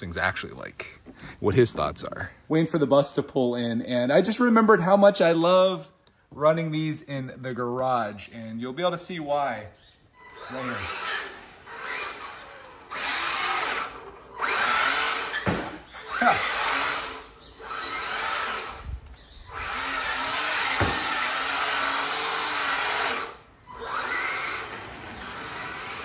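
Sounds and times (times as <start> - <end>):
rc truck motor whining: 9.8 - 26.0
sharp knocks: 15.4 - 15.8, 20.7 - 21.3.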